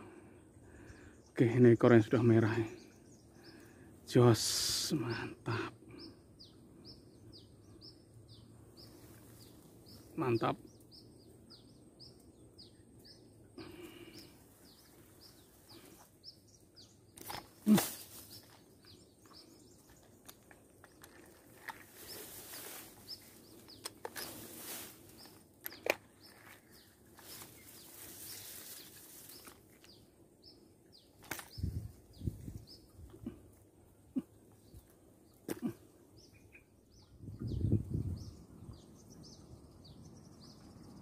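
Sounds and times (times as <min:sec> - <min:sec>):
small bird chirping: 0:14.0 - 0:33.4
rustling: 0:17.2 - 0:18.7, 0:19.8 - 0:29.9.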